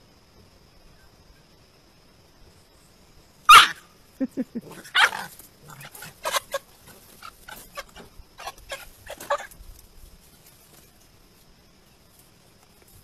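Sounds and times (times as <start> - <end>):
puppy yapping and yelping: 3.5 - 3.8, 4.7 - 9.5.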